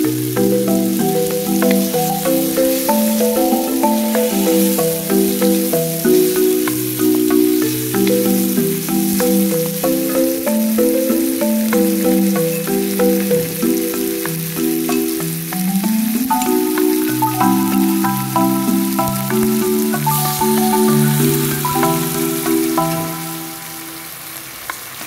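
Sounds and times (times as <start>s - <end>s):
instrumental background music: 0.0s - 24.4s
food sizzling in a wok: 0.0s - 25.0s.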